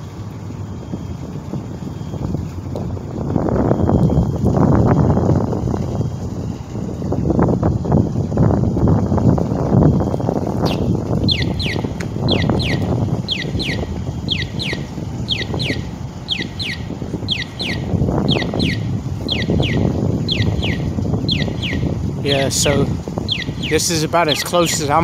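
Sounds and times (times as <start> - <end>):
wind rumble on microphone: 0.0 - 25.0
short high chirps: 10.7 - 25.0.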